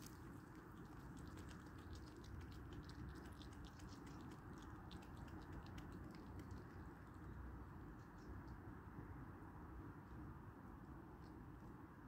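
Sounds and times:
fox chewing crunching clicks: 0:00.0 - 0:07.3
low background noise: 0:00.0 - 0:12.0.

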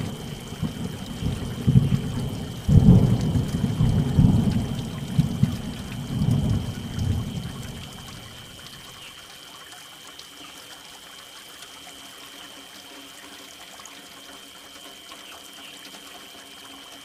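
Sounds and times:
water drops ticking: 0:00.0 - 0:09.8
steady rainfall: 0:00.0 - 0:17.0
water trickling: 0:00.0 - 0:17.0.

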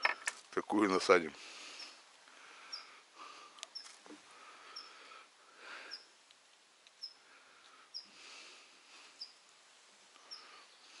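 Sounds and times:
small bird chirping: 0:01.7 - 0:02.0, 0:02.7 - 0:03.0, 0:03.6 - 0:04.0, 0:04.7 - 0:05.0, 0:05.9 - 0:06.2, 0:06.9 - 0:07.3, 0:07.9 - 0:08.2, 0:09.1 - 0:11.0.

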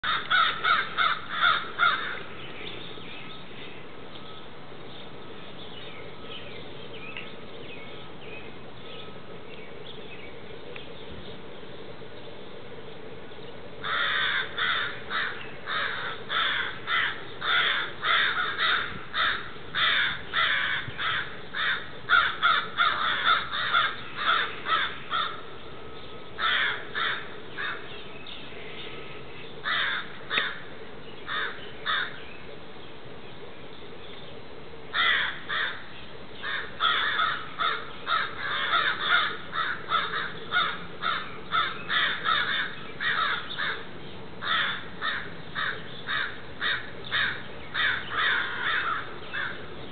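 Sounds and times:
crows cawing harshly: 0:00.0 - 0:02.3, 0:13.8 - 0:25.6, 0:26.4 - 0:27.9, 0:29.6 - 0:30.7, 0:31.3 - 0:32.2, 0:34.9 - 0:49.7.

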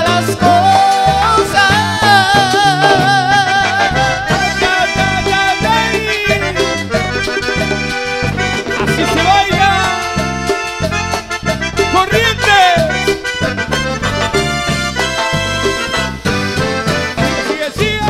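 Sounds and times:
latin dance band playing: 0:00.0 - 0:18.0.

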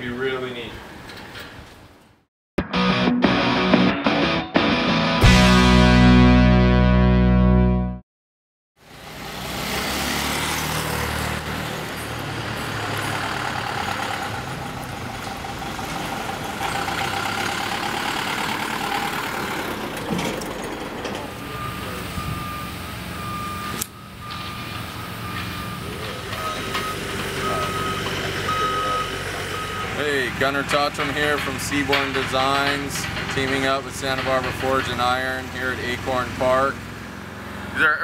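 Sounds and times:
truck engine running: 0:10.2 - 0:38.0
reversing alarm beeping: 0:21.2 - 0:30.4.

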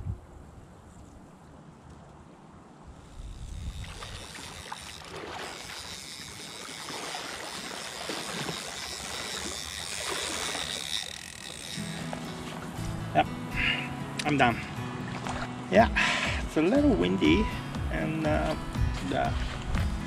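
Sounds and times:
legs sloshing through water: 0:03.7 - 0:12.9, 0:14.3 - 0:16.4, 0:18.8 - 0:20.0.

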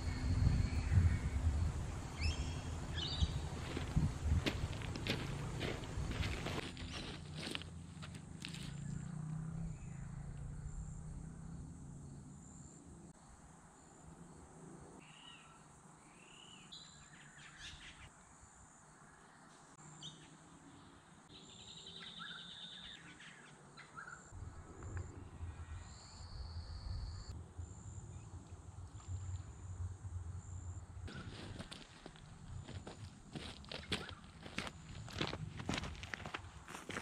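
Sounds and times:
birds chirping: 0:00.0 - 0:11.8, 0:31.1 - 0:32.2, 0:33.3 - 0:35.2.

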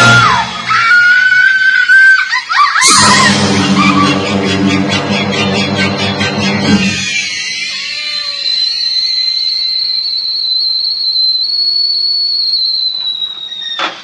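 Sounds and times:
kettle whistling: 0:06.2 - 0:14.0.

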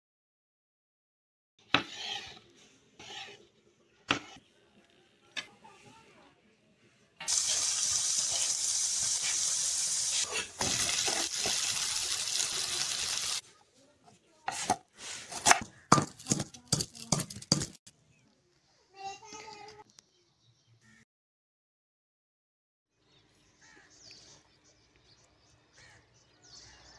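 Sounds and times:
dough sizzling in hot oil: 0:07.2 - 0:13.4
pestle pounding in mortar: 0:15.9 - 0:17.8.

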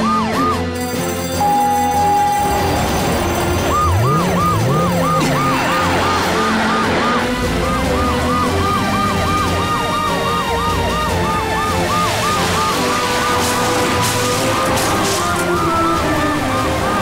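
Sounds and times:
cartoon siren wailing: 0:00.0 - 0:00.8, 0:03.4 - 0:14.6
background music: 0:00.0 - 0:17.0.

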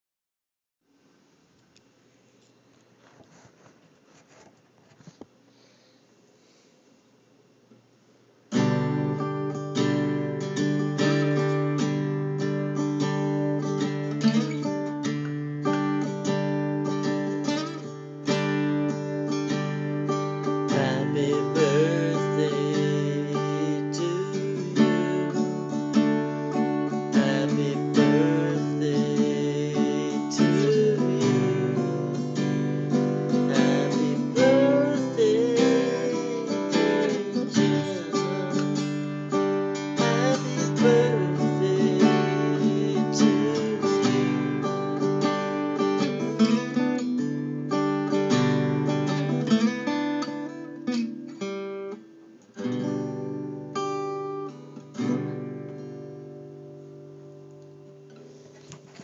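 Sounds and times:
acoustic guitar strumming chords: 0:08.5 - 0:59.0
person humming a melody: 0:20.7 - 0:25.7, 0:27.2 - 0:32.4, 0:33.4 - 0:38.8, 0:40.0 - 0:44.6.

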